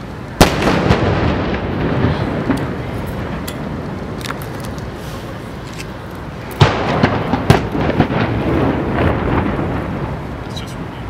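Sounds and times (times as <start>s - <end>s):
outdoor background noise: 0.0s - 11.0s
cannon firing bang: 0.4s - 3.4s, 6.6s - 10.2s.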